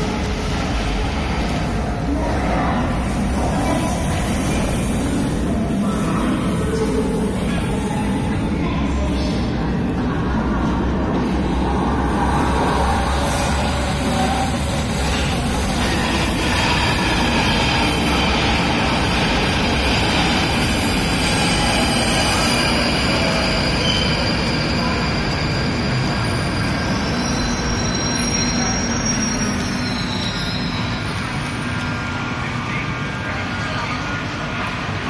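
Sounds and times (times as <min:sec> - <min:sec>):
train wheels rumbling on rail: 0:00.0 - 0:35.0
wheel and brake squeal: 0:22.3 - 0:31.6.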